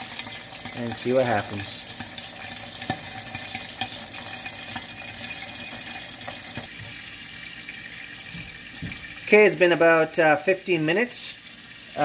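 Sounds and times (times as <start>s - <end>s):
fish sizzling in a frying pan: 0.0s - 7.6s.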